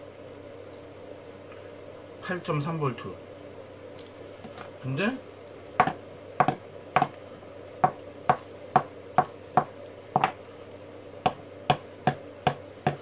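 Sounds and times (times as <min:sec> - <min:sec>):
batteries knocking on workbench: 0:05.8 - 0:07.2.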